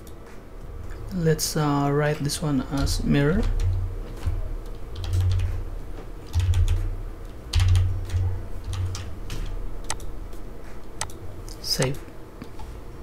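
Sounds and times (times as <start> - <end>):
keyboard keys clicking: 2.7 - 12.7
low dull thumps: 2.8 - 10.7.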